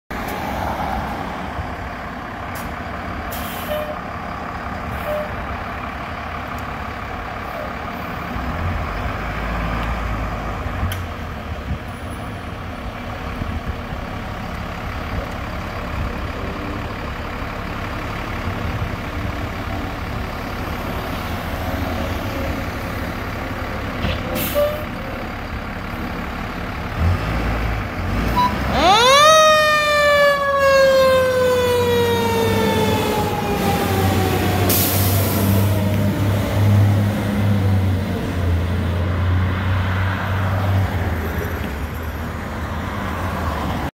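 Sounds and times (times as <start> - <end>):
diesel engine running: 0.7 - 43.9
air brake hiss: 3.3 - 4.0, 24.3 - 24.8, 34.7 - 35.5.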